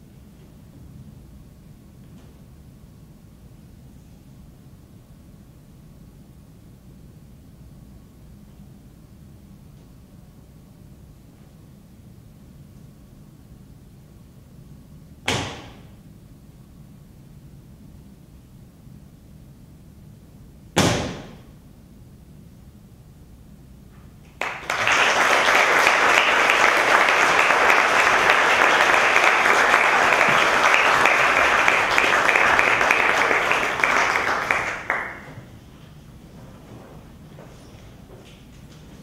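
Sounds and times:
audience applause: 24.3 - 35.4.

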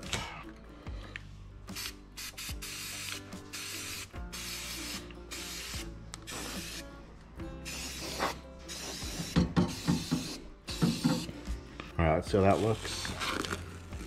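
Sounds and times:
spray paint can hissing: 1.7 - 6.9, 7.6 - 11.3.

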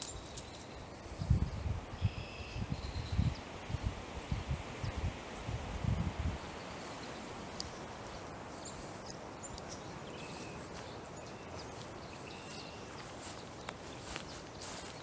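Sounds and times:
faint scattered clicks: 0.0 - 1.0, 7.0 - 7.9, 8.6 - 14.8
steady outdoor hiss: 0.0 - 15.0.

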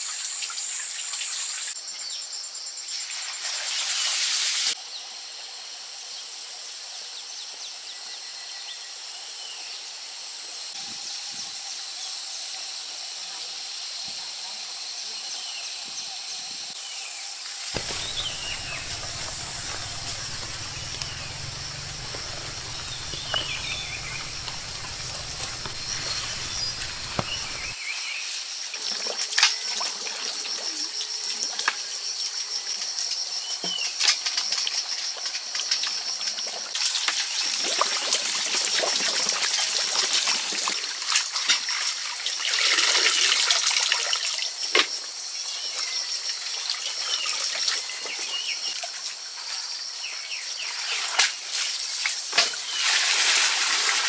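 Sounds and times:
bird chirps: 17.8 - 27.8
low hum: 17.8 - 27.8
steady high-pitched whine: 17.8 - 27.8
water trickling: 17.8 - 27.8.

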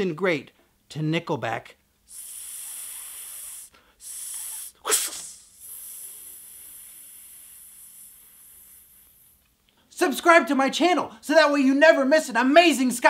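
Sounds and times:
man hissing through teeth: 2.1 - 9.4.

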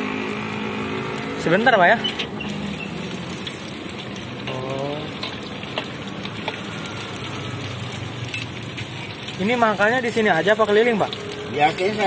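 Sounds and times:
fish cakes sizzling in oil: 0.0 - 12.0.

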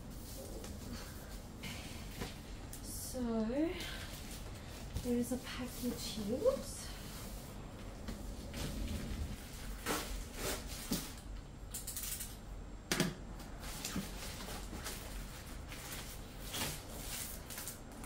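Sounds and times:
paper and cardboard rustling: 13.6 - 18.0.

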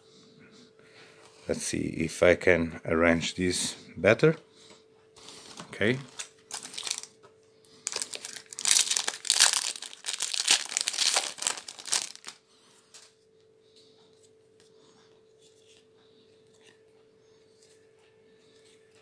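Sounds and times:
foil wrapper tearing and crinkling: 6.2 - 7.1, 7.8 - 12.4.

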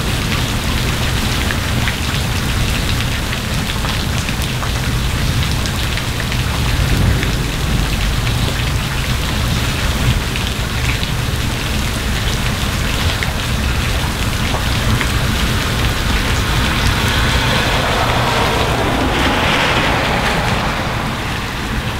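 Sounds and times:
steady rain on street and leaves: 0.0 - 21.9.

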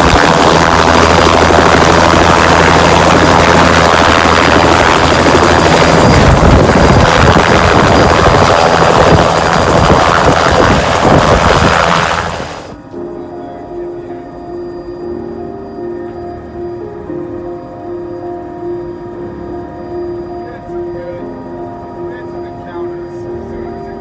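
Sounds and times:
helicopter rotor beating: 0.0 - 12.8.

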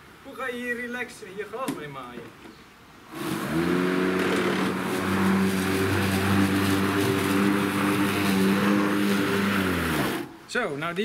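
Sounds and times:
electric lawn mower cutting grass: 3.1 - 10.3.

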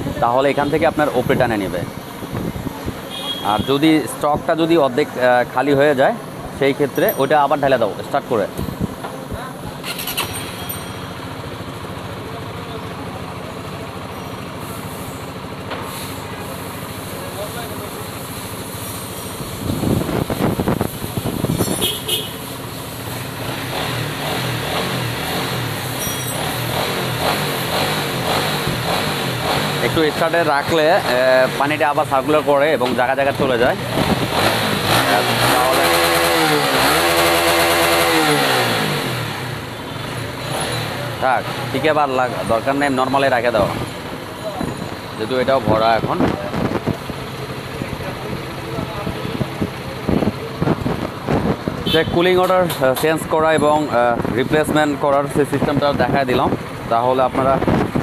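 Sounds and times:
motorcycle engine idling: 5.2 - 34.9, 46.4 - 52.1.

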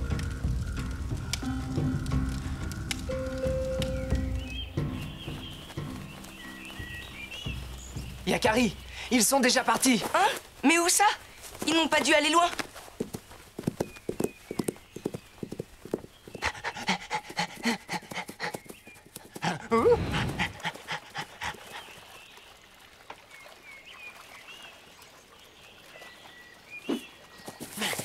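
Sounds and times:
quick footstep taps: 11.5 - 16.1
cartoon dog panting: 16.4 - 18.7, 19.3 - 21.9
low breathy sound: 19.4 - 22.0.

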